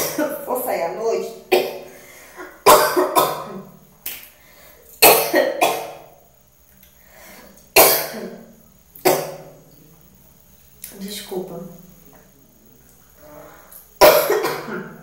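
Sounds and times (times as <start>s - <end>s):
woman coughing: 0.0s - 0.4s, 1.5s - 1.9s, 2.6s - 3.7s, 5.0s - 6.0s, 7.8s - 8.4s, 14.0s - 15.0s.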